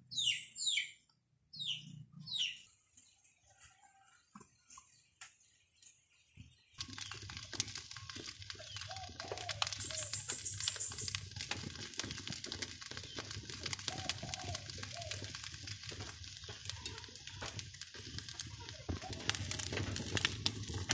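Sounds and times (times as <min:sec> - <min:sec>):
wood fire crackling and popping: 0:06.8 - 0:20.9.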